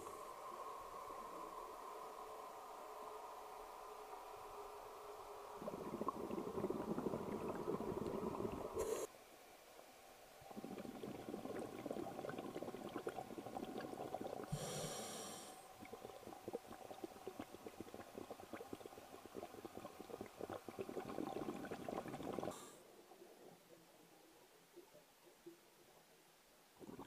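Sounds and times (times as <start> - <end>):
bubbling underwater exhalation: 5.6 - 8.9, 10.4 - 22.6, 26.8 - 27.0
regulator hissing inhalation: 8.8 - 9.1, 14.4 - 15.8.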